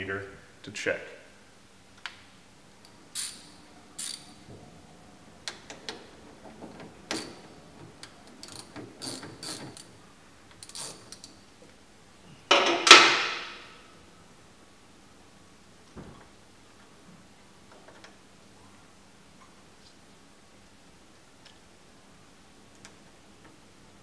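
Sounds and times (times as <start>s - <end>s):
ratchet wrench clicking: 3.1s - 4.3s, 8.3s - 9.9s, 10.6s - 11.4s.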